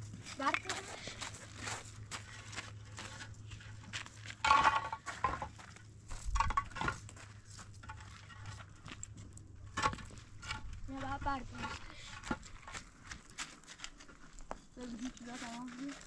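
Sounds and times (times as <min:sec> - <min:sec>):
concrete blocks knocking and scraping: 0:02.9 - 0:14.6.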